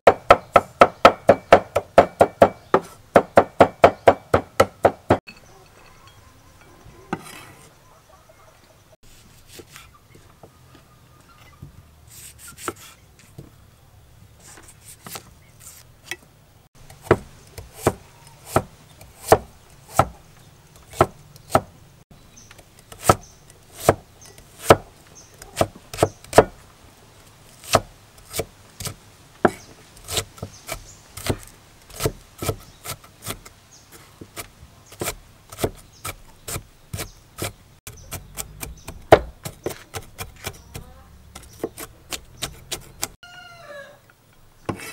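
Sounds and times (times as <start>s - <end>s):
cleaver chopping on wooden block: 0.1s - 5.2s, 16.9s - 20.2s, 20.9s - 21.7s, 22.9s - 26.6s, 27.6s - 33.5s, 34.2s - 43.2s.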